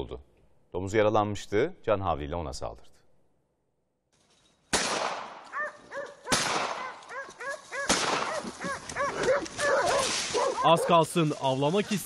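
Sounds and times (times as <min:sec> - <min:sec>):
loud gunshots: 0:04.7 - 0:05.4, 0:06.3 - 0:06.9, 0:07.9 - 0:08.4
dogs barking and yelping: 0:05.5 - 0:11.3.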